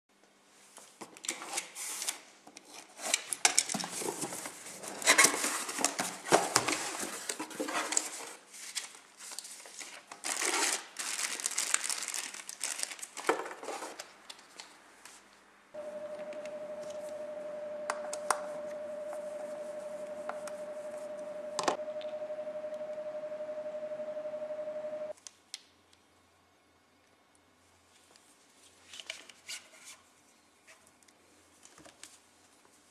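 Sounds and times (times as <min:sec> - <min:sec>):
cardboard and packing crinkling: 0:03.5 - 0:14.7
mid-pitched hum with hiss: 0:14.8 - 0:28.9.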